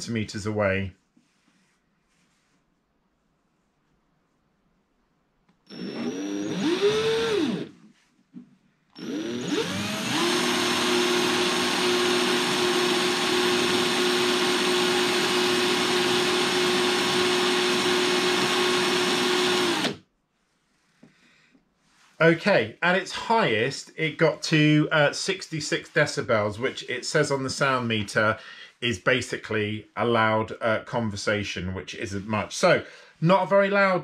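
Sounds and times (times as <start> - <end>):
cordless drill whining: 5.6 - 7.8, 9.0 - 20.0.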